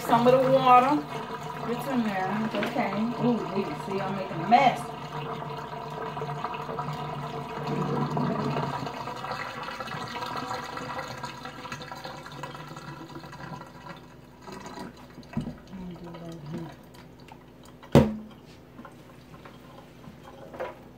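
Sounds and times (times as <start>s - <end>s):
water gurgling down a drain: 0.0s - 18.0s.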